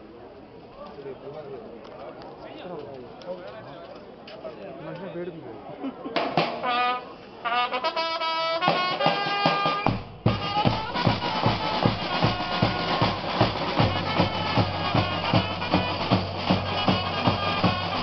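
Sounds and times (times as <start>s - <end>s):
marching brass band playing: 6.2s - 18.0s
bass drum beat: 9.9s - 18.0s.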